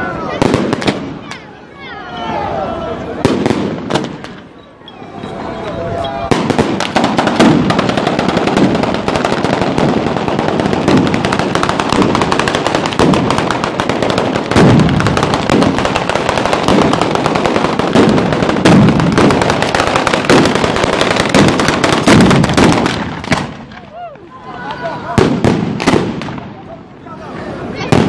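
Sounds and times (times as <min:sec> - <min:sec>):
rapid firecracker crackle: 0:00.0 - 0:01.6, 0:03.0 - 0:04.6, 0:06.0 - 0:28.0
heavy firework bangs: 0:00.3 - 0:01.3, 0:03.2 - 0:04.5, 0:06.2 - 0:23.9, 0:25.0 - 0:26.6, 0:27.7 - 0:28.0.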